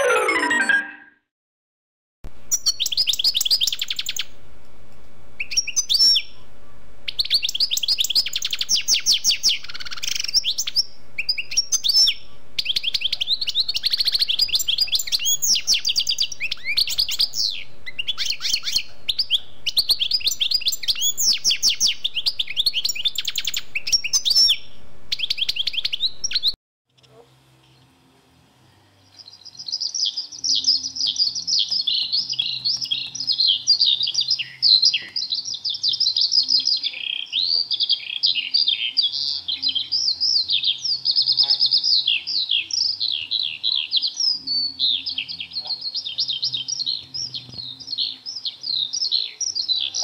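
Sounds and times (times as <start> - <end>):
faint steady hum: 2.3 - 26.4
songbird singing trills and chirps: 2.5 - 4.3, 5.4 - 6.4, 7.1 - 26.6, 29.0 - 50.0.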